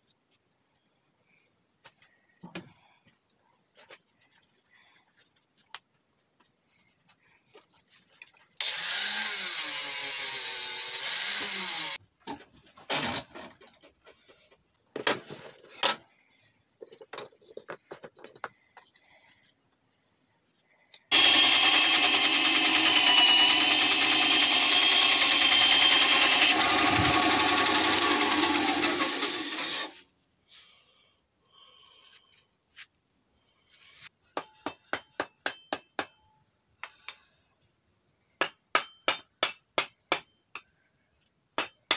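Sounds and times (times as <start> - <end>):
bandsaw cutting wood: 8.6 - 12.0, 21.1 - 30.0
whining power tool motor: 8.6 - 12.0, 21.1 - 30.0.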